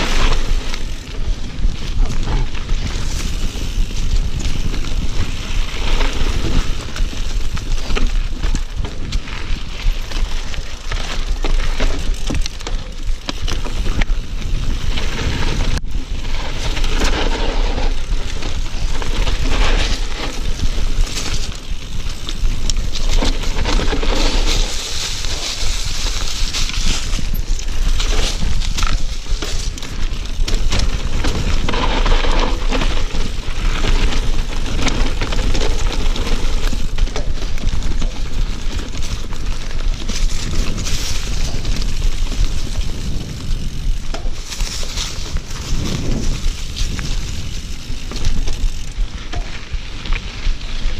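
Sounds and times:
bike chain and frame rattling: 0.0s - 50.9s
bike tyres crunching over dirt: 0.0s - 50.9s
wind buffeting microphone: 0.0s - 50.9s.

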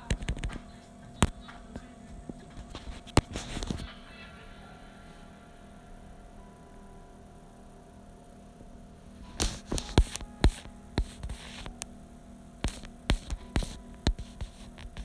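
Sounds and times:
faint steady hum: 0.0s - 15.0s
phone knocking and rubbing on microphone: 2.2s - 3.9s, 9.4s - 11.8s, 12.7s - 15.0s.

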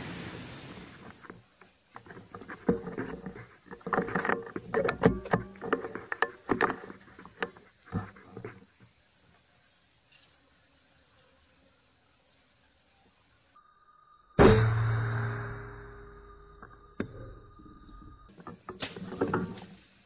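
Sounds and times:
air rifle handling knocks and clicks: 2.0s - 7.6s.

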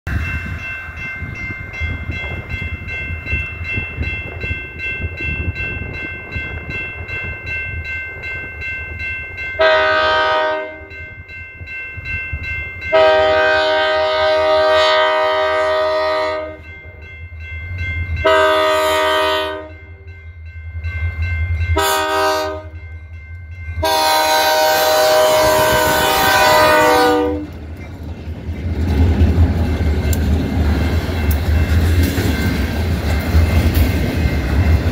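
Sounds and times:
crossing bell ringing: 0.1s - 34.9s
locomotive air horn blasts: 9.6s - 11.0s, 12.9s - 16.7s, 18.2s - 19.9s, 21.8s - 22.8s, 23.8s - 27.6s
diesel locomotive rumble: 23.6s - 34.9s.

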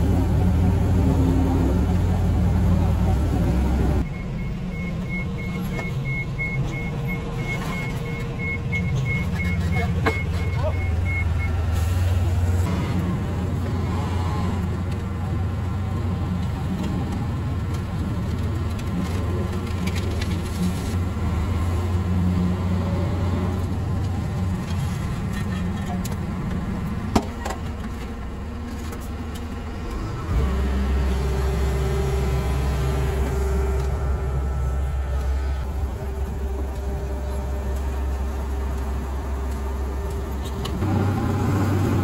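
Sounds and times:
diesel engine running: 0.0s - 42.0s.

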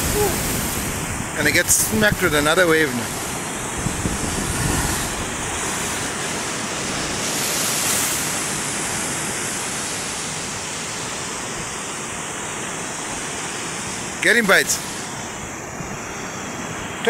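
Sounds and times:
surf breaking on rocks: 0.0s - 15.3s.

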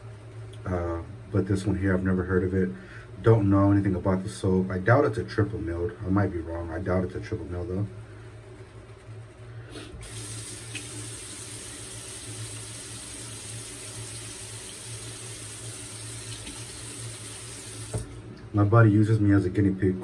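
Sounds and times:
water running from a sink tap: 10.0s - 18.2s.

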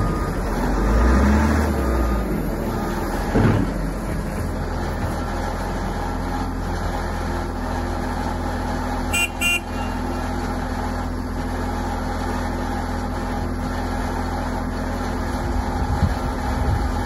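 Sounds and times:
diesel engine idling: 0.0s - 17.0s.

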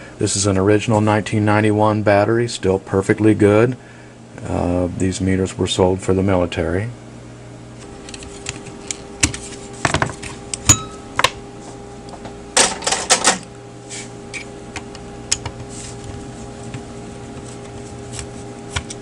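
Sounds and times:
low hum: 10.4s - 12.6s.

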